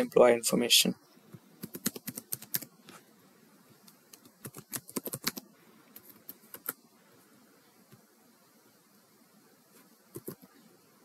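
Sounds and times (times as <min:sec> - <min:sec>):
keyboard typing clicks: 0:04.1 - 0:05.4.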